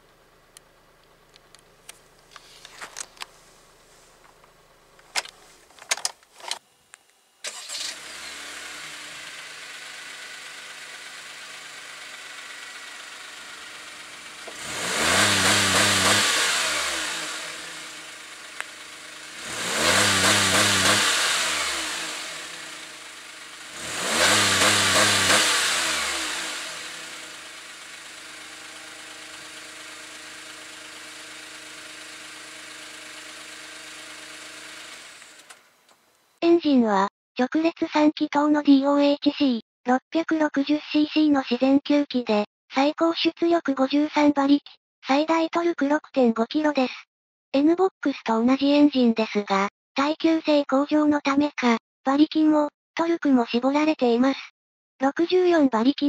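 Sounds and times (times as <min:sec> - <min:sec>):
van engine starting and revving: 0:07.4 - 0:35.8.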